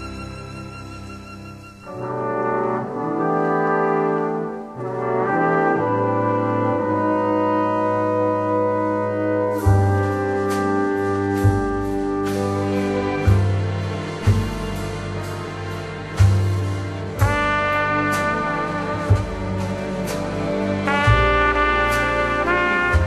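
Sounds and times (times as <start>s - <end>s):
strings: 0.0s - 6.9s, 8.0s - 23.0s
brass section chords: 1.8s - 23.0s
bass line: 7.2s - 23.0s
drum kit with cymbals: 8.8s - 23.0s.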